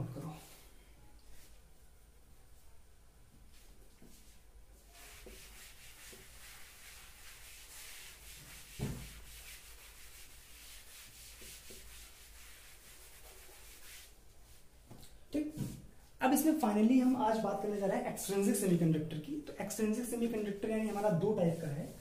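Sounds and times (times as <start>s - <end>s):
duster scrubbing chalkboard: 4.0s - 14.6s, 19.9s - 22.0s.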